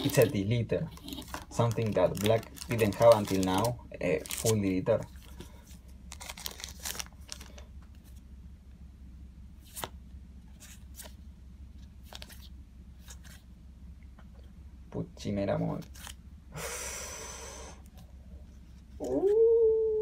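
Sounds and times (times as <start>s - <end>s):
trading cards rustling: 0.0s - 8.2s
low hum: 16.1s - 20.0s.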